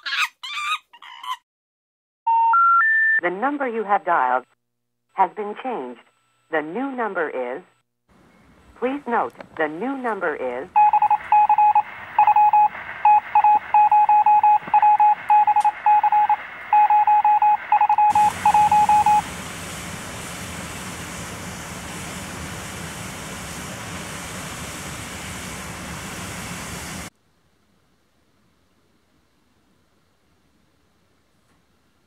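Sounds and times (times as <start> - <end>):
rapid telephone beeping tones: 10.8 - 19.2
open phone line hiss: 10.8 - 27.1.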